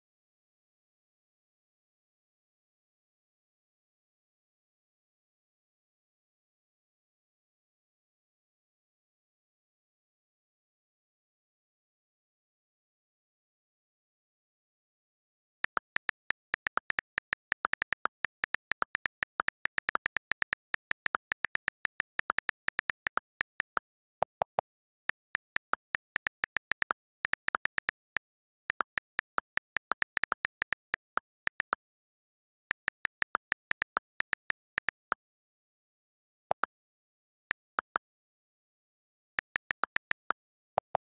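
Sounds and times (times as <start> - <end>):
lower-pitched clicks: 15.6 - 31.8, 32.5 - 35.2, 36.5 - 36.7, 37.5 - 38.0, 39.4 - 41.0
phone keyboard tap clicks: 15.6 - 31.8.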